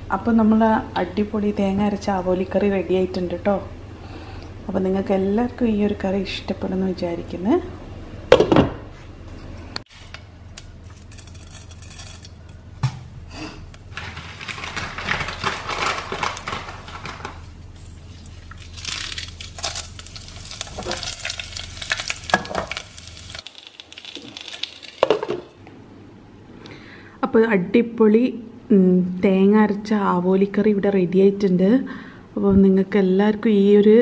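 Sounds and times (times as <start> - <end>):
seeds sizzling in hot oil: 17.8 - 25.4.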